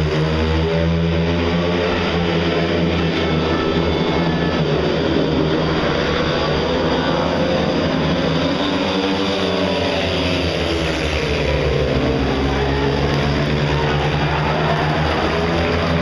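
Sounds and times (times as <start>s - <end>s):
motorcycles racing: 0.0s - 16.0s.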